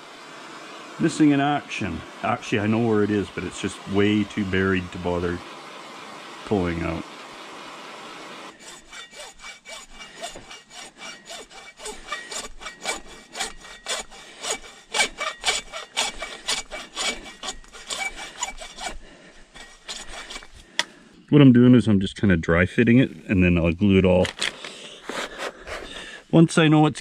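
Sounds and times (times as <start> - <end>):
hand saw cutting plastic pipe: 8.5 - 20.9, 24.3 - 26.1.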